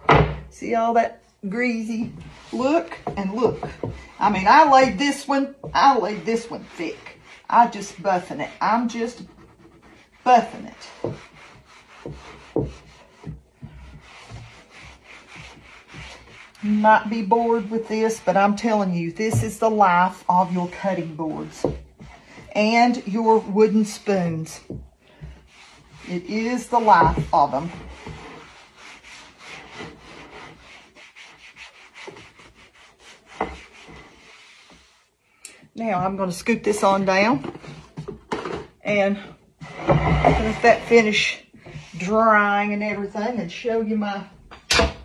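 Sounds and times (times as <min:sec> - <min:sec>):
knock: 0:00.0 - 0:00.5
cloth rubbing on wooden board: 0:01.6 - 0:35.2.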